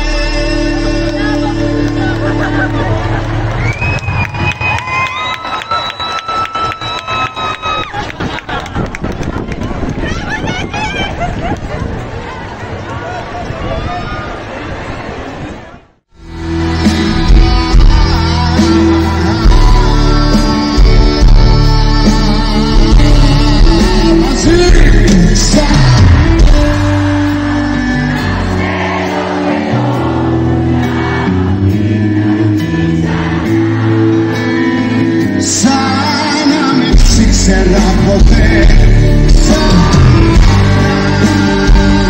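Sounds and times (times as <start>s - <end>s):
man singing: 0.0s - 2.5s, 16.4s - 28.0s, 34.6s - 42.0s
live pop band: 0.0s - 8.8s, 16.2s - 42.0s.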